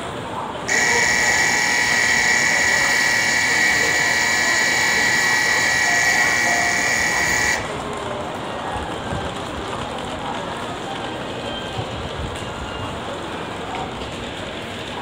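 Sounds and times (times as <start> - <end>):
platform departure bell ringing: 0.7 - 9.2.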